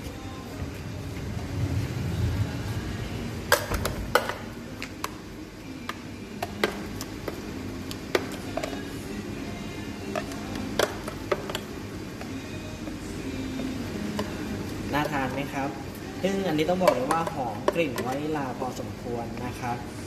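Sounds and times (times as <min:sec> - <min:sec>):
low rumble: 0:00.6 - 0:03.5.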